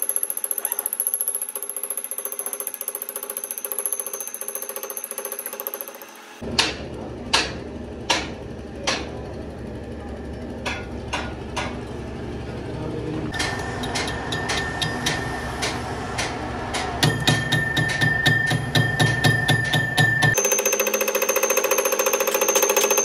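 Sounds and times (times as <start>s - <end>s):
rapid mechanical ticking: 20.3s - 23.0s.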